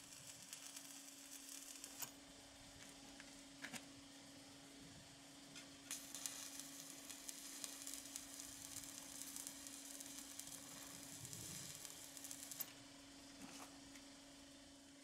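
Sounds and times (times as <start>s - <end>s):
welding arc crackling and sizzling: 0.0s - 2.2s, 5.9s - 12.8s.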